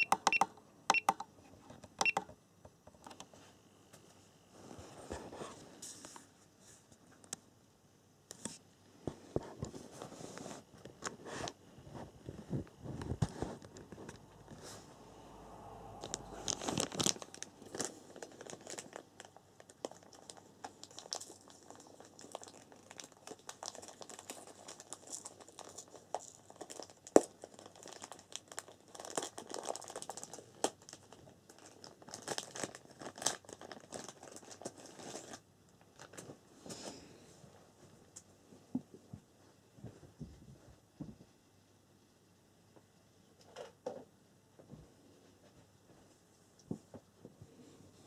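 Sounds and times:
packaging crinkling: 0:16.0 - 0:36.4.

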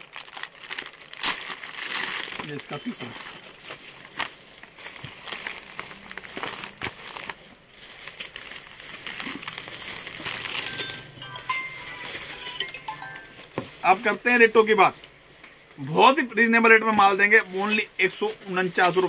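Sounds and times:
packaging rustling and crinkling: 0:00.0 - 0:19.0.

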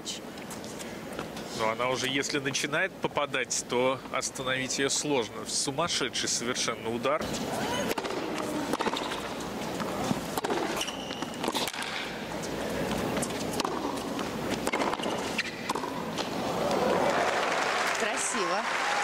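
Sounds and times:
crowd background: 0:05.3 - 0:19.0
tennis ball hit by racquets: 0:07.8 - 0:17.2.

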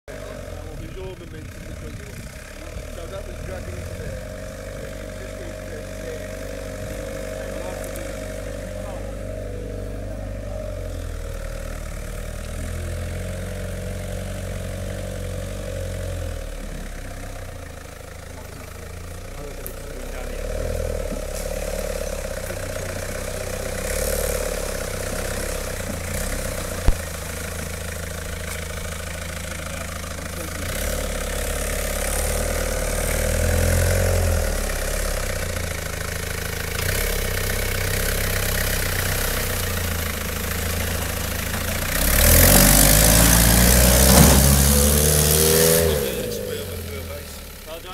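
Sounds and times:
off-road vehicle engine: 0:00.0 - 0:47.9.

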